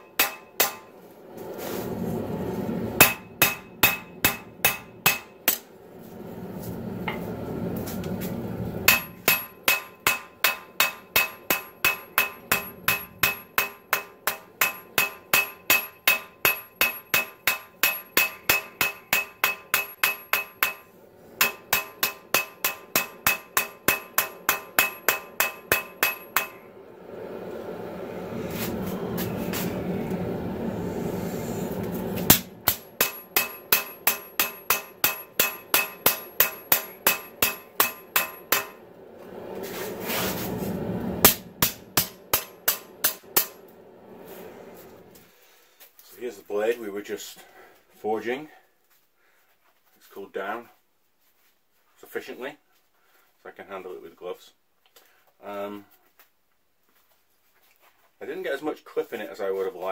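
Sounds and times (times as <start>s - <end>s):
hammer blows on anvil ringing: 0.0s - 0.9s, 3.0s - 5.4s, 8.9s - 26.6s, 32.3s - 38.8s
steady rushing noise: 0.6s - 15.6s, 19.4s - 45.3s.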